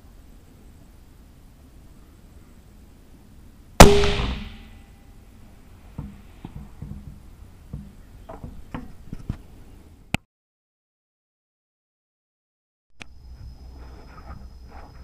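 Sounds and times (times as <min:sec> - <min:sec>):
rifle shot: 0:03.8 - 0:04.8.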